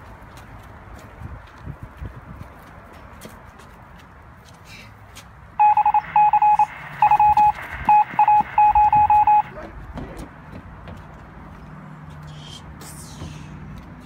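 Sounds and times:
loud electronic beeps: 5.6 - 9.5.

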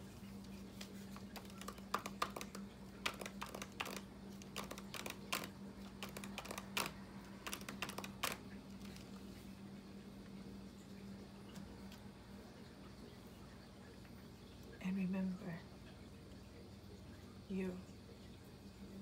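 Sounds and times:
faint steady hum: 0.0 - 19.0
fingernails tapping on book cover: 1.2 - 9.0.

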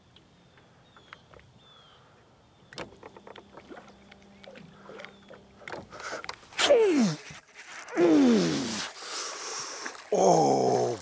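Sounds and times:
low steady hum: 0.0 - 8.4
fishing tackle clicks and knocks: 2.7 - 6.5.

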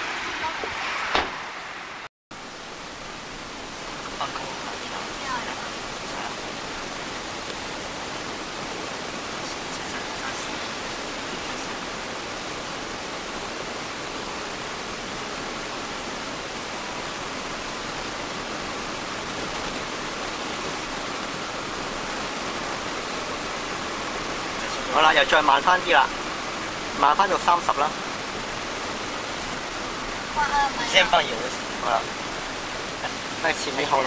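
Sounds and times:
steady hiss: 0.0 - 34.0.

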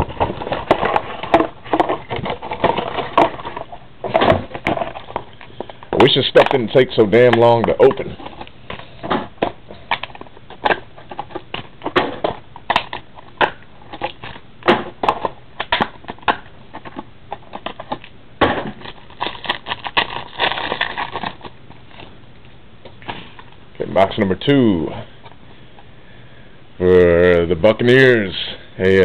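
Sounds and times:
packaging being torn and crinkling: 18.7 - 22.1.

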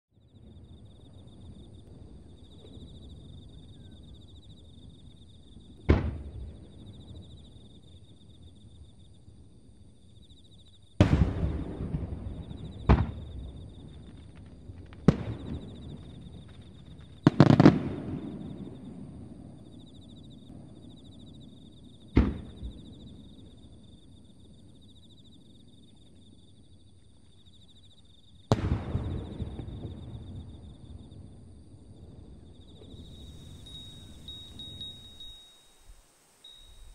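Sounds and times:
insects chirring: 0.3 - 36.9
fireworks bangs with echo: 5.8 - 6.7, 11.0 - 18.9, 22.1 - 22.9, 28.5 - 30.6.

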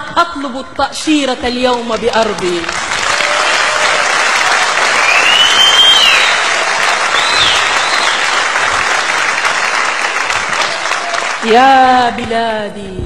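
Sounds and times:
audience applauding: 1.8 - 12.2
high whistle: 5.0 - 6.5, 7.1 - 8.4.

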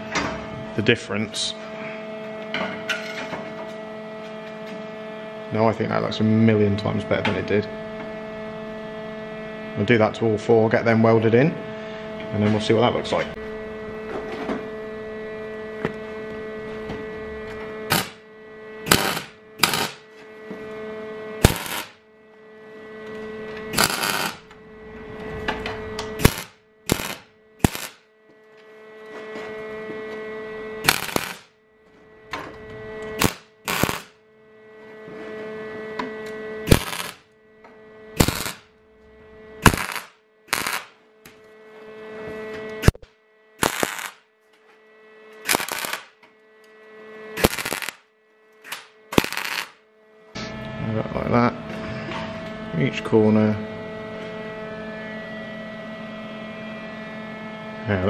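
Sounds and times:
electrical hum: 0.0 - 58.0
welding arc crackle: 17.9 - 18.2, 18.8 - 20.1, 21.4 - 22.0, 23.7 - 24.5, 26.0 - 28.1, 30.8 - 31.5, 33.0 - 34.2, 36.6 - 37.3, 38.2 - 38.7, 39.6 - 41.0, 43.6 - 44.3, 45.4 - 46.2, 47.4 - 49.8.

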